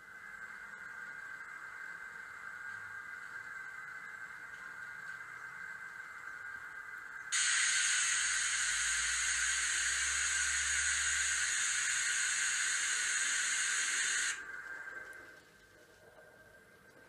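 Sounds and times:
steam hiss from small speaker: 0:07.3 - 0:15.0.

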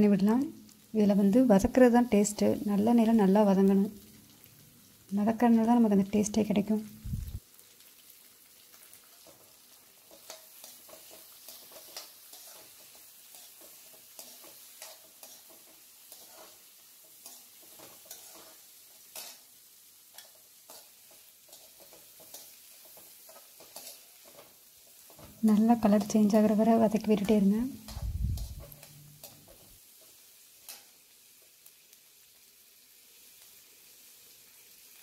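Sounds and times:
faint frying sizzle: 0:00.0 - 0:35.0
spatula scraping pan: 0:09.2 - 0:19.5, 0:20.1 - 0:26.5.

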